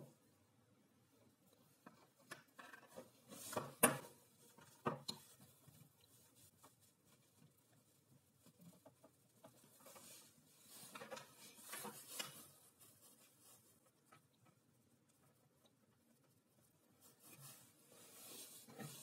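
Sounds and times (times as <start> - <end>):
soft rustles: 1.1 - 19.0.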